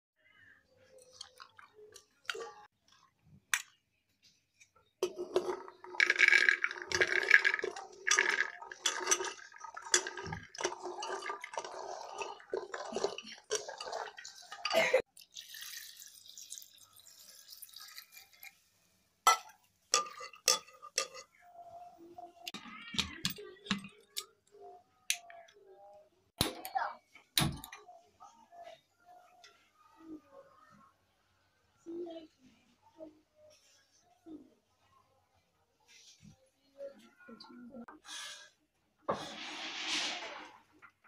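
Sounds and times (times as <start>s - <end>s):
chickpeas clattering against metal: 5.0s - 14.7s
water splashing in bowl: 5.5s - 18.5s.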